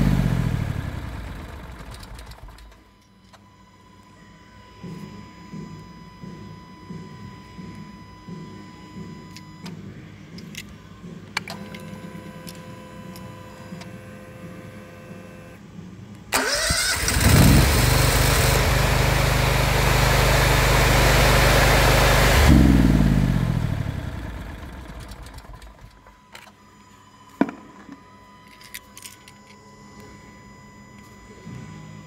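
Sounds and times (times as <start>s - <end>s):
generator engine running: 0.0s - 2.7s, 16.4s - 26.0s
electric starter cranking: 0.0s - 2.9s, 16.4s - 26.0s.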